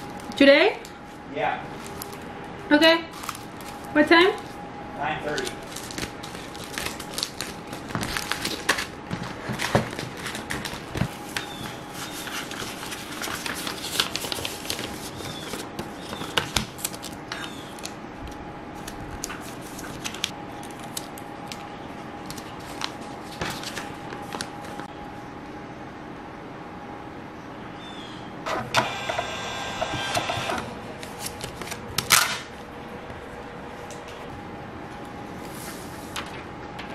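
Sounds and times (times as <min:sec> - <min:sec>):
paper and plastic rustling: 0:01.0 - 0:02.3, 0:03.1 - 0:04.6, 0:05.2 - 0:24.9, 0:31.0 - 0:32.3.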